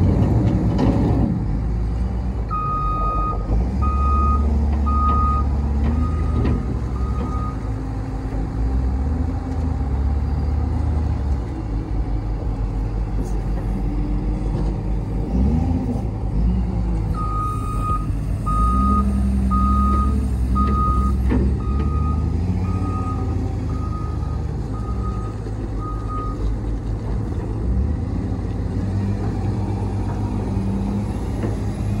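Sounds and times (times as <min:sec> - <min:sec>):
diesel engine running: 0:00.0 - 0:32.0
backup alarm beeps: 0:02.5 - 0:07.6, 0:17.2 - 0:26.4.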